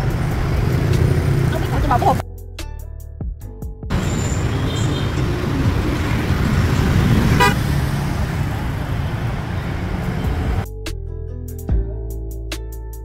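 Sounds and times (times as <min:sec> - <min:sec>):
motorbikes riding past: 0:00.0 - 0:02.2, 0:03.9 - 0:10.6
short horn beep: 0:07.4 - 0:07.6.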